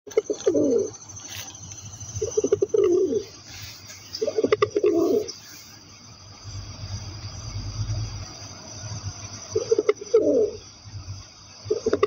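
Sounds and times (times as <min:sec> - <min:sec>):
pigeon cooing: 0:00.1 - 0:01.0, 0:02.2 - 0:03.4, 0:04.2 - 0:05.4, 0:09.6 - 0:10.6.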